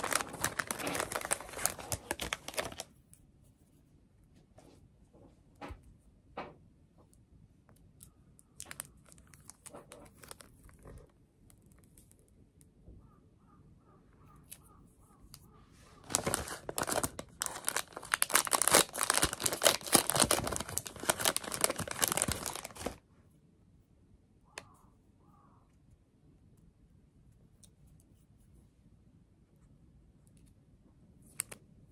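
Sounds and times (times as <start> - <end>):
plastic wrapper crinkling and tearing: 0.0 - 2.9, 8.4 - 11.1, 16.0 - 23.0.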